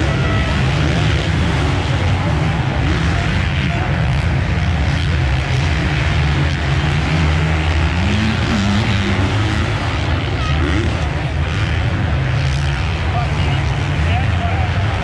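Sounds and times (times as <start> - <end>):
engines droning: 0.0 - 15.0.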